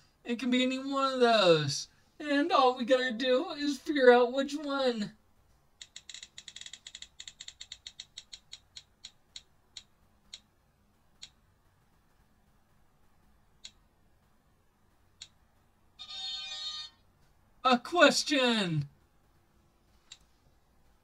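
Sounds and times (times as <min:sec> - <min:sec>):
app wheel ticking: 0:05.8 - 0:11.6.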